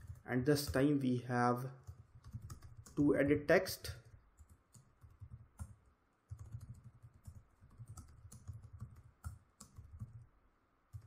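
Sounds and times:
faint typing on keyboard: 0:00.0 - 0:01.0, 0:01.8 - 0:10.3.

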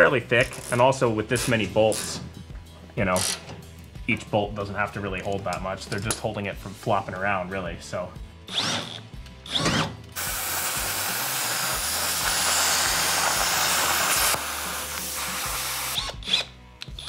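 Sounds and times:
plasma cutter hissing: 0:10.2 - 0:16.0.

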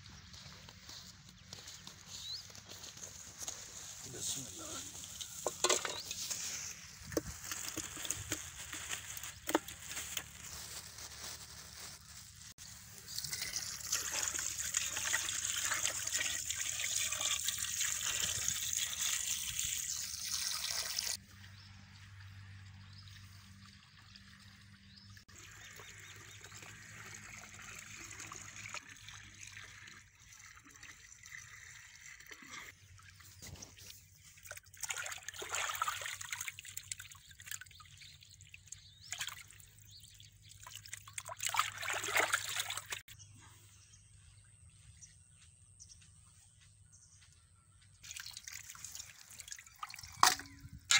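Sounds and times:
water splashing and sloshing: 0:02.6 - 0:11.9, 0:22.4 - 0:43.2, 0:48.0 - 0:50.9
water pouring into a pot: 0:13.0 - 0:21.2, 0:25.4 - 0:32.7, 0:34.5 - 0:37.8, 0:40.4 - 0:43.1, 0:48.0 - 0:50.6.

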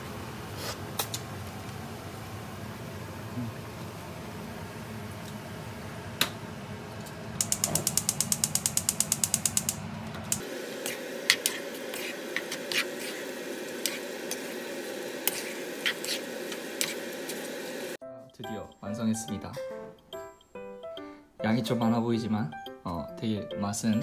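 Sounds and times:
ratchet clicking: 0:07.4 - 0:10.4.

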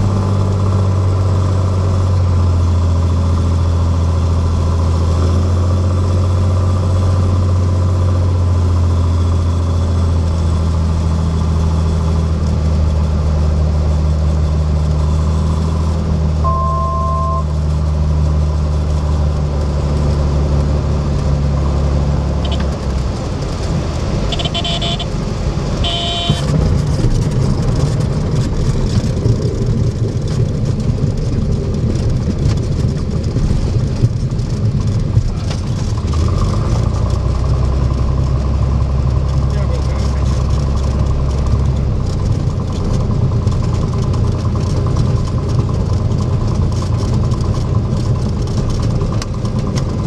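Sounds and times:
airplane engine and propeller drone: 0:00.0 - 0:50.0
short horn-like tones: 0:24.3 - 0:25.1, 0:25.8 - 0:26.5
wheels rolling on runway: 0:26.3 - 0:50.0.

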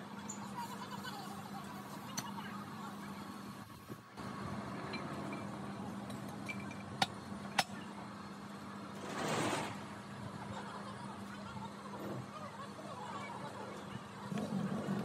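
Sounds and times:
brief rushing noise: 0:09.0 - 0:09.9.

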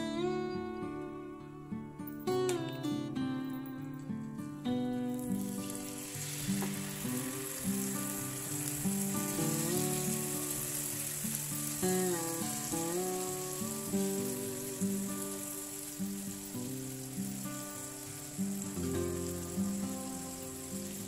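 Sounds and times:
chicken sizzling in hot oil: 0:05.1 - 0:21.0.

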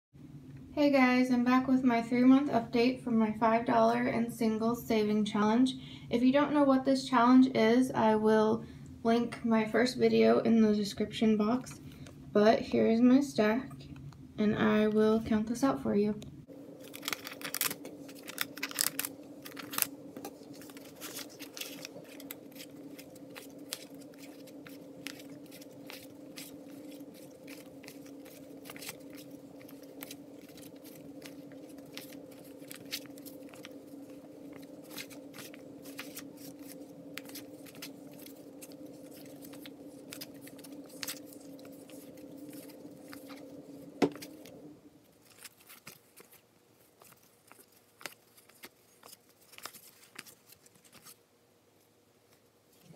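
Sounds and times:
low background hum: 0:00.2 - 0:52.9
banknotes rustling and snapping: 0:16.7 - 0:51.2.

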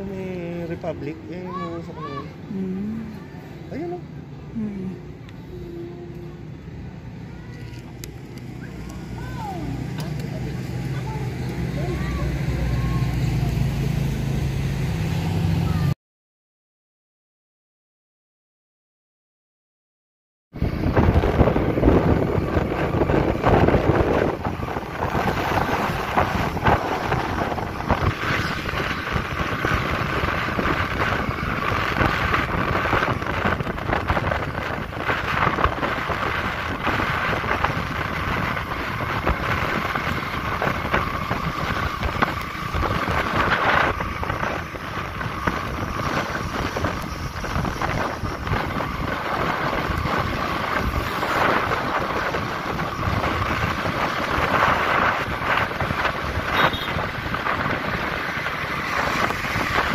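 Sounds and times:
vehicle engine and road noise: 0:00.0 - 0:16.0, 0:20.6 - 0:59.9
wind rushing over microphone: 0:20.6 - 0:59.9.

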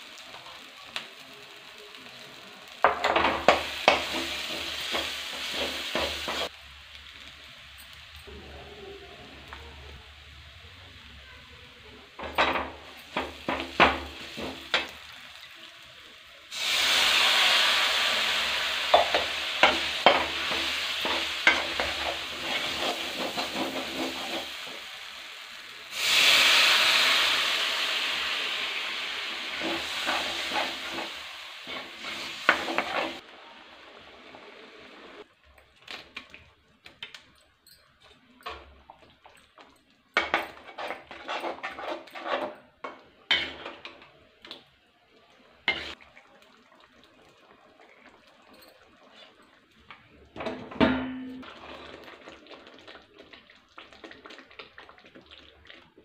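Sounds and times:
loud sizzles: 0:00.0 - 0:35.3
masala frying in a pan: 0:00.0 - 0:56.0.

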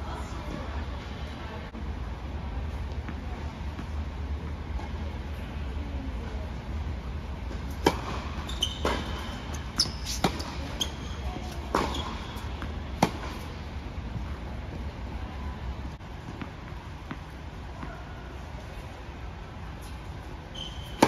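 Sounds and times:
tennis ball struck by rackets: 0:07.7 - 0:10.7, 0:11.4 - 0:13.5
ball bouncing on hard court: 0:07.8 - 0:13.5, 0:16.2 - 0:18.0
shoe squeaks: 0:08.2 - 0:12.6, 0:20.5 - 0:21.0.

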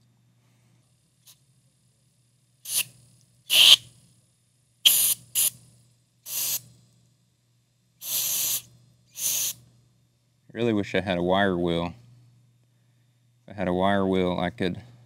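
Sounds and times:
aerosol spray hissing: 0:02.7 - 0:02.9, 0:03.5 - 0:03.8, 0:04.8 - 0:05.5, 0:06.3 - 0:06.6, 0:08.0 - 0:09.6.

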